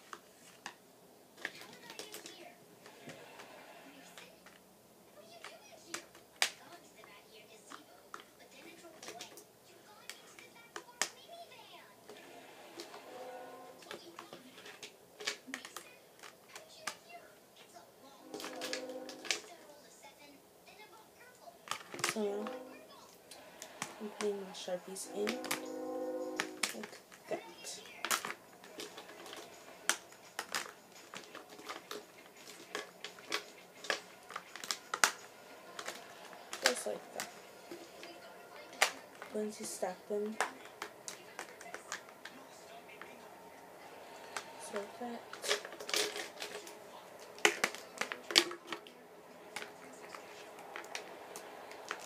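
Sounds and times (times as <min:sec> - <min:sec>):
markers tapping plastic box: 0:21.7 - 0:22.8, 0:23.6 - 0:25.8, 0:26.4 - 0:43.2, 0:44.2 - 0:52.0.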